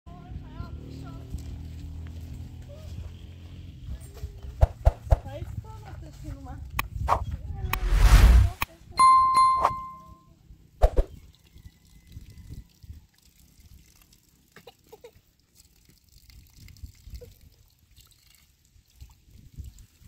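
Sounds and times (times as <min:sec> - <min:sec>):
water trickling from tap: 0:11.3 - 0:20.0.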